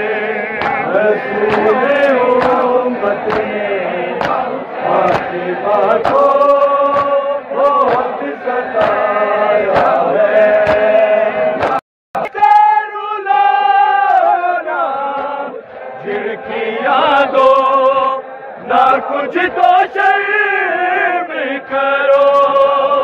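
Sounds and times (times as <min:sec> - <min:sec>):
men chanting in unison: 0:00.0 - 0:23.0
chest-beating slaps: 0:00.6 - 0:03.5, 0:04.2 - 0:04.5, 0:06.0 - 0:06.3, 0:06.9 - 0:07.2, 0:08.8 - 0:09.0, 0:09.7 - 0:10.0, 0:10.6 - 0:11.0, 0:11.6 - 0:12.6.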